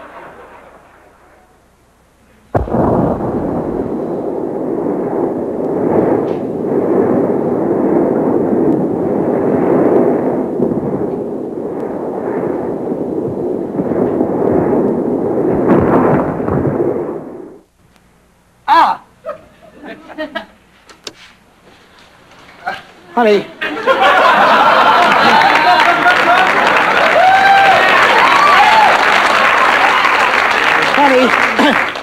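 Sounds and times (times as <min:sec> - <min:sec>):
audience applause and cheering: 0:24.0 - 0:32.0.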